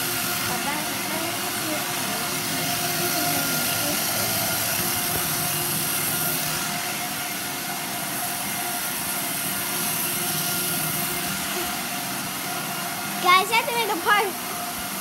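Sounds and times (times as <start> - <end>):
treadmill motor whine: 0.0 - 15.0.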